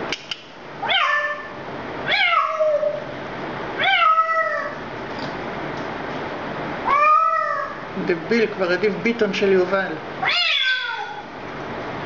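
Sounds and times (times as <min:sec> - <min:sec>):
parrot mimicking cat meow: 0:03.8 - 0:04.8, 0:06.8 - 0:07.8, 0:10.2 - 0:11.3.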